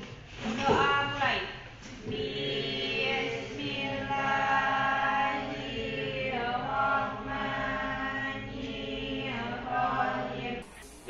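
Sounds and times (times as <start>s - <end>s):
students reciting in unison: 2.0s - 10.8s.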